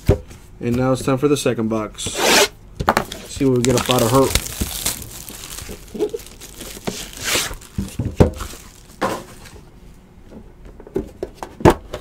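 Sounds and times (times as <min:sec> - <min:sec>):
plastic wrap crinkling and tearing: 0:03.3 - 0:09.5.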